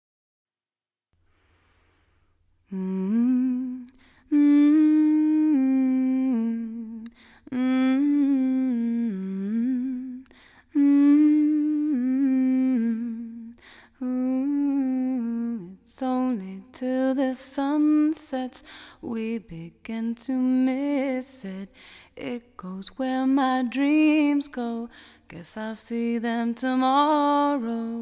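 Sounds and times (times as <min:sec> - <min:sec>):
breaths: 0:01.2 - 0:02.5, 0:03.9 - 0:04.3, 0:07.1 - 0:07.5, 0:10.2 - 0:10.8, 0:13.6 - 0:14.0, 0:18.6 - 0:19.0, 0:21.7 - 0:22.2, 0:24.9 - 0:25.3
person humming a slow melody: 0:02.7 - 0:15.6.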